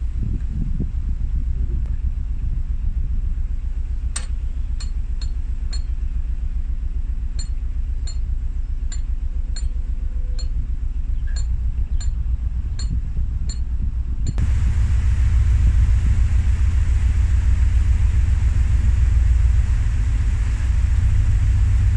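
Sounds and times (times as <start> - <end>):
diesel engine idling: 0.9 - 21.9
short metallic clicks: 4.2 - 5.9.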